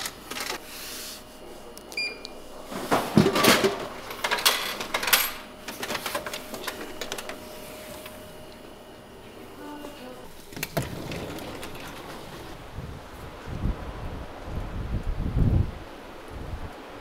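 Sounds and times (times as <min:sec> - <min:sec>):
coin clicking into machine: 0:04.1 - 0:05.4.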